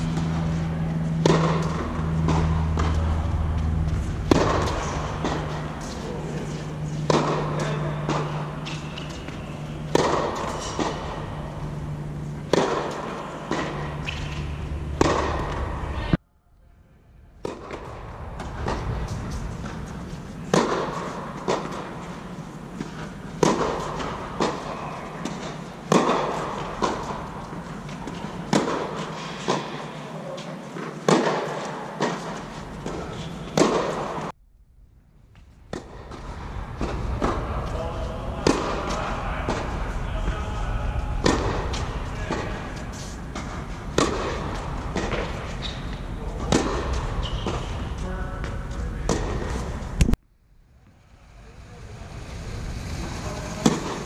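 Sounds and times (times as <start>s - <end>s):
ball bouncing on hard court: 0.0s - 15.9s, 17.4s - 22.1s, 22.8s - 29.8s, 30.8s - 34.3s, 43.3s - 50.2s
tennis ball struck by racket: 0.0s - 16.2s, 19.6s - 29.9s, 30.8s - 34.3s, 38.4s - 38.9s, 41.2s - 47.8s.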